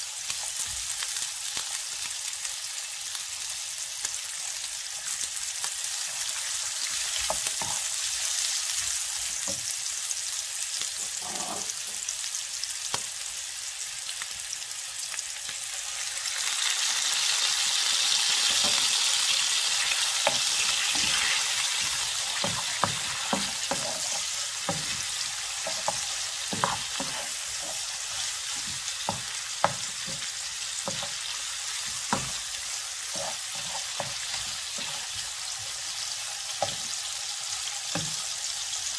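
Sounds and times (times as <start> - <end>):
meat sizzling in oil: 0.0 - 38.9
wooden spatula scraping pan: 19.8 - 35.3.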